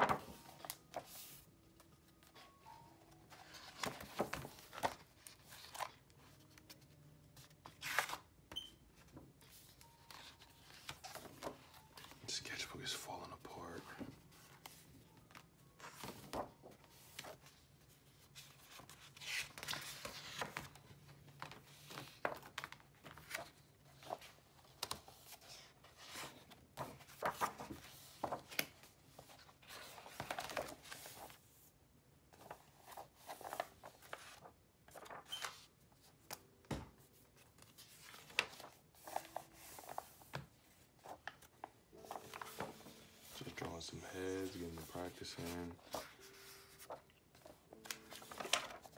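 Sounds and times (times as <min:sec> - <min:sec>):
paper pages rustling and crinkling: 0:00.0 - 0:08.3, 0:09.0 - 0:31.7, 0:32.3 - 0:48.9.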